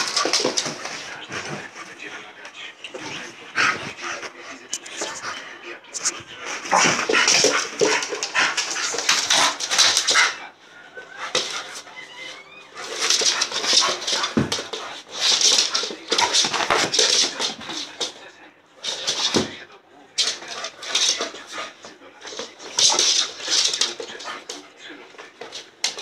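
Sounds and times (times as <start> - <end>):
dog playing noisily: 0.0 - 26.0
dog whining: 11.0 - 13.4.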